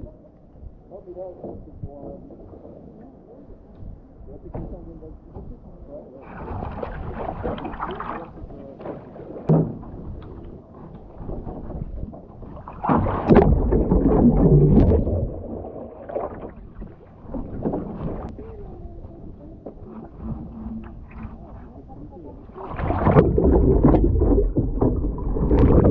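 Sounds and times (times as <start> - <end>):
water lapping against kayak: 0.0 - 25.9
rush of splashing water: 6.2 - 18.4, 22.4 - 25.9
paddle strokes: 6.2 - 25.9.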